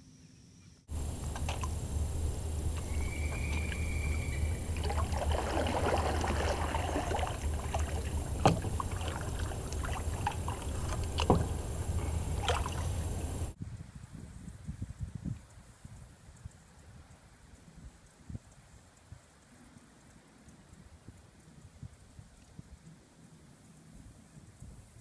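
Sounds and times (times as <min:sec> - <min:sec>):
sharp knocks on canoe: 0:00.9 - 0:13.5
steady low rumble: 0:00.9 - 0:13.6
water swishing with paddle strokes: 0:00.9 - 0:13.6.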